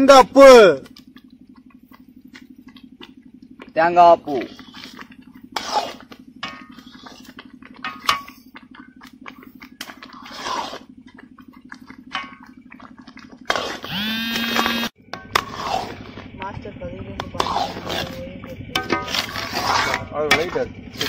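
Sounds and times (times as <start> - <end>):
hands mixing flour in pot: 0.0 - 21.0
low hum: 0.0 - 21.0
loud held pitched tone: 13.9 - 15.4.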